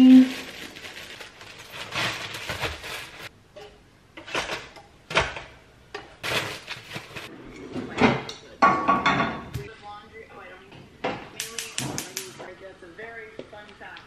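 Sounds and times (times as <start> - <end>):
plastic bag crinkling: 0.0 - 3.3, 6.2 - 7.3
sharp kitchen knocks: 8.0 - 9.6.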